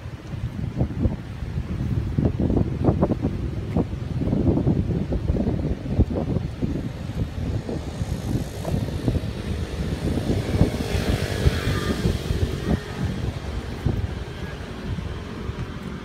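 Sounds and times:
wind rumbling on microphone: 0.0s - 16.0s
passing vehicle hiss: 6.7s - 15.5s.

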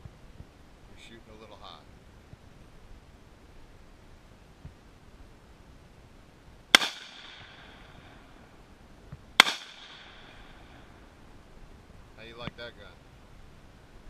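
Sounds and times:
rifle shots with ringing echo: 6.7s - 8.3s, 9.4s - 10.9s.

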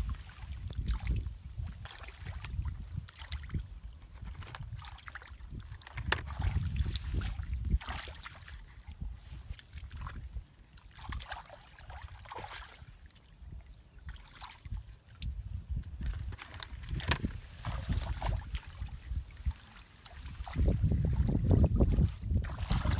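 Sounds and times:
hands splashing in muddy water: 4.7s - 12.9s, 16.8s - 22.9s.

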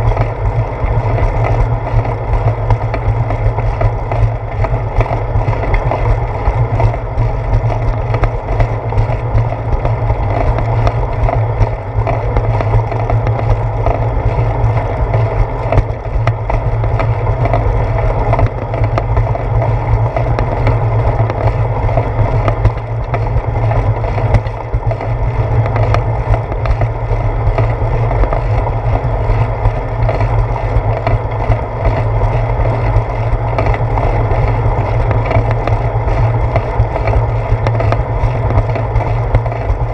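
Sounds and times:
bicycle rolling on concrete: 0.0s - 39.9s
wind noise: 0.0s - 39.9s.

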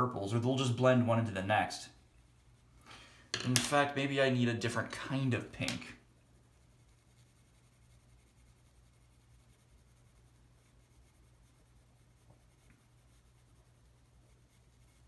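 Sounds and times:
low steady hum: 0.0s - 15.0s
pencil scratching on paper: 6.4s - 15.0s.

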